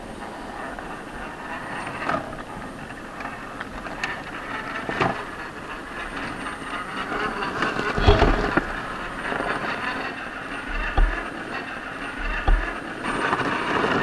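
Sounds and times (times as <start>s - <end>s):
electric motor and drivetrain running: 0.0s - 14.0s
tyres knocking over rock: 8.0s - 8.8s, 10.6s - 11.3s, 12.2s - 12.8s.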